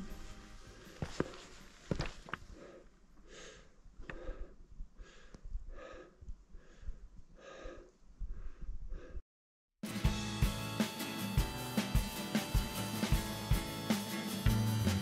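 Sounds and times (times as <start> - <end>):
person breathing hard: 0.5 - 1.7, 2.4 - 9.3.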